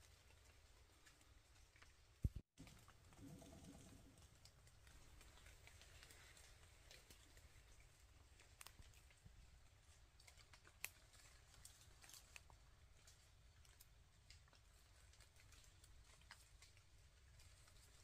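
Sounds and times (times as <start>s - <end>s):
faint irregular clicks: 0.0s - 18.0s.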